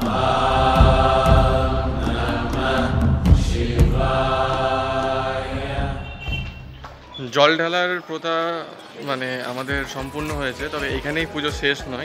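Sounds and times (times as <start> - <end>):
devotional chanting: 0.0 - 6.4
low drum beat: 0.0 - 6.8.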